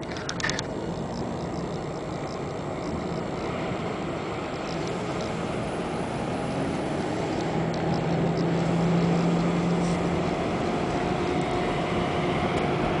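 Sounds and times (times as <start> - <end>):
low engine hum: 0.0 - 13.0
traffic noise inside car: 0.0 - 13.0.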